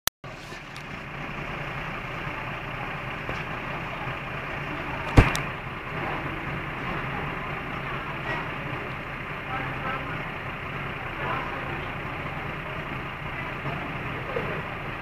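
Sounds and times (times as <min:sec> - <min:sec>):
vehicle engine idling: 0:00.2 - 0:15.0
sharp bang: 0:05.1 - 0:05.5.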